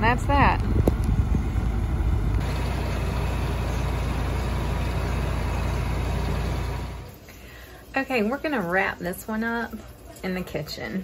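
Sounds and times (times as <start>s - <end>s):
tractor engine running: 0.0s - 7.2s.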